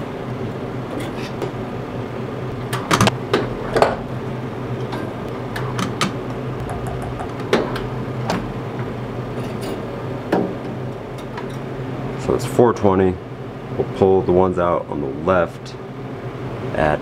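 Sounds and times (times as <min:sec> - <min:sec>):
steady low hum: 0:06.3 - 0:09.4.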